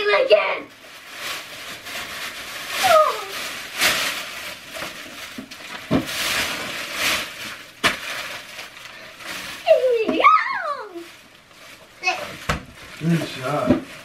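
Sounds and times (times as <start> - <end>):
wrapping paper crinkling: 0.1 - 14.0.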